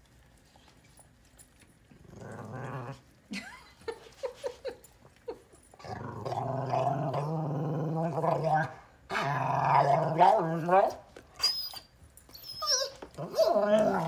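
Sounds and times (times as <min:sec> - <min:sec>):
dog grumbling: 0:02.0 - 0:03.0, 0:13.2 - 0:14.0
dog whining: 0:08.4 - 0:14.0
dog moaning: 0:12.4 - 0:14.0.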